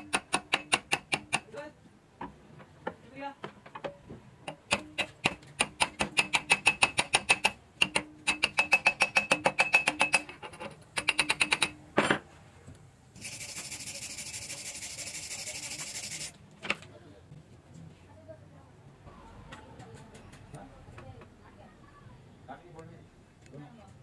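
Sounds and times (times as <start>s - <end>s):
hammer tapping metal: 0.0s - 1.5s, 3.8s - 12.2s
wire brush scratching metal: 13.2s - 16.4s.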